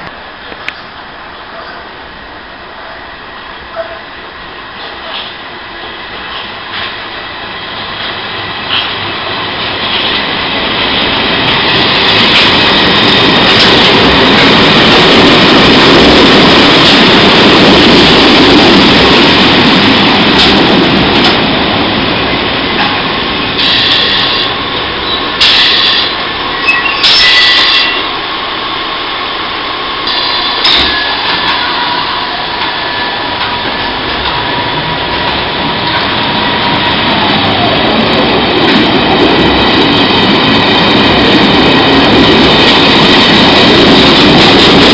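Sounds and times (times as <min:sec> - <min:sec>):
electric train rumbling: 0:00.0 - 0:44.9.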